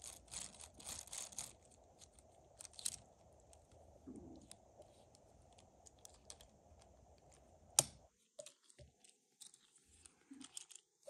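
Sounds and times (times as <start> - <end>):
plastic parts clicking and rattling: 0.0 - 3.8, 4.8 - 11.0.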